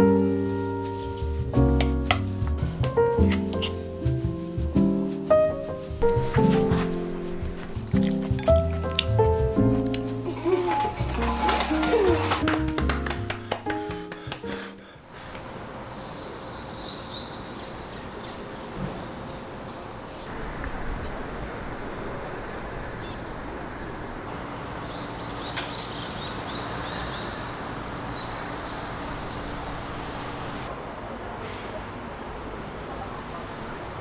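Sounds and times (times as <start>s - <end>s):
distant outdoor noise: 5.3s - 34.0s
small birds chirping: 15.1s - 21.2s, 23.0s - 23.4s, 24.7s - 30.6s.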